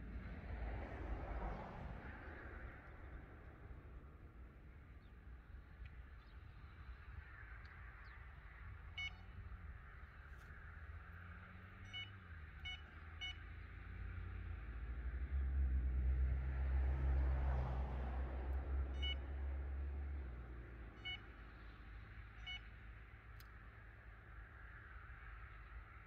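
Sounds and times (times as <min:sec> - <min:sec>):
bite alarm beeps: 0:09.0 - 0:09.2, 0:11.8 - 0:13.4, 0:19.0 - 0:19.3, 0:22.4 - 0:22.7.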